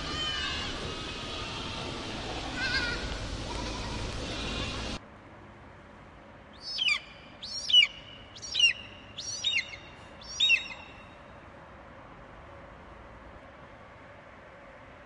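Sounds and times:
outdoor noise: 0.0 - 15.0
bird whistled calls: 6.6 - 11.2.

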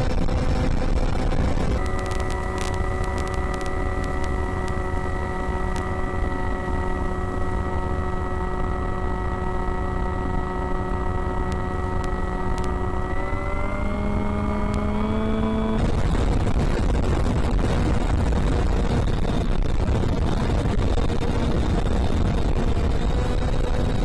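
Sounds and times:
wind rush on microphone: 0.0 - 24.0
electric motor whine: 0.2 - 24.0.

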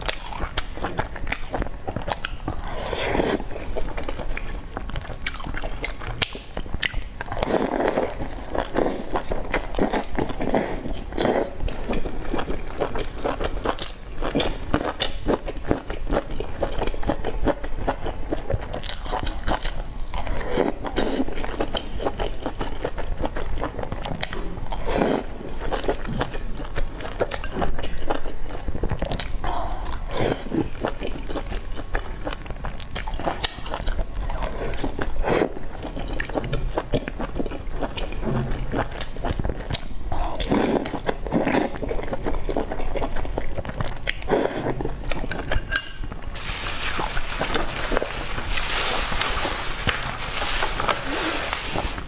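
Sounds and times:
person chewing food: 0.0 - 52.0.

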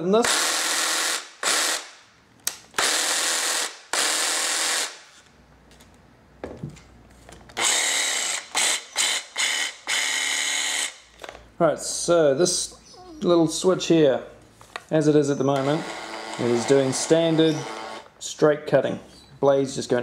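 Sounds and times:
jigsaw motor running: 15.6 - 18.0.

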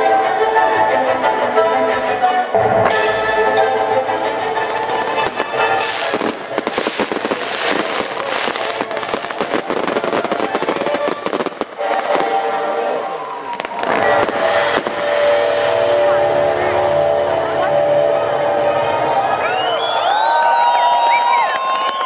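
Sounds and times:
show music: 0.0 - 20.4
firework bangs and crackles: 4.1 - 18.4.

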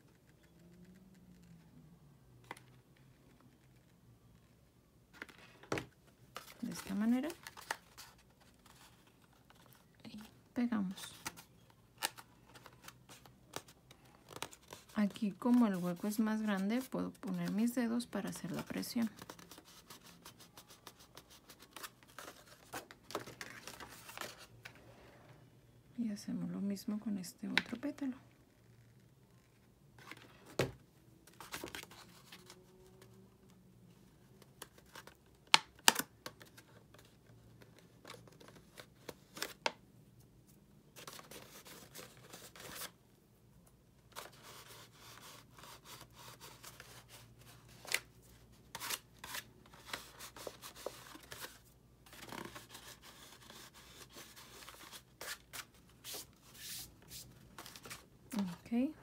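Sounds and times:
cardstock rustling and crinkling: 5.1 - 24.8, 30.0 - 33.1, 44.1 - 58.7.

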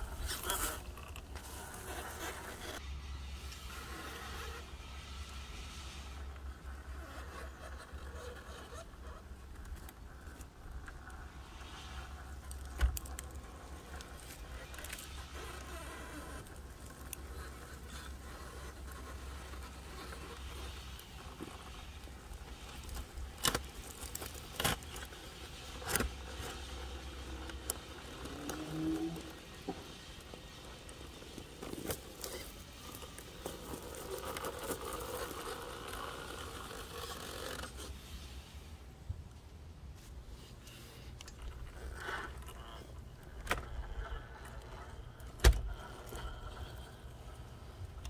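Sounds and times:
rc car motor whirring: 0.0 - 38.3.

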